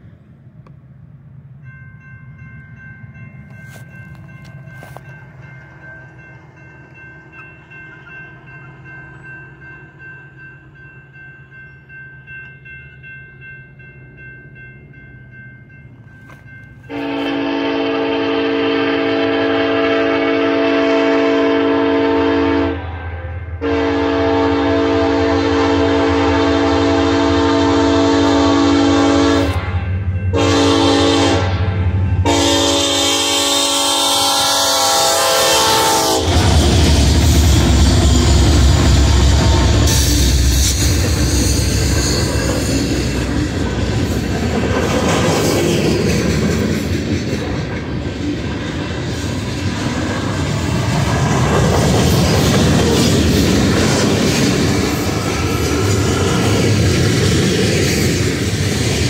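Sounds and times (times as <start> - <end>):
diesel train rumbling: 0.0 - 59.0
crossing bell ringing: 1.3 - 51.0
train air horn blasts: 16.9 - 43.3.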